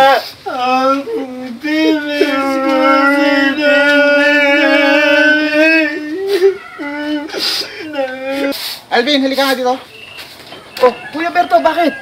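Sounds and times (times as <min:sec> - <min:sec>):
person's sliding cries: 0:00.0 - 0:08.8.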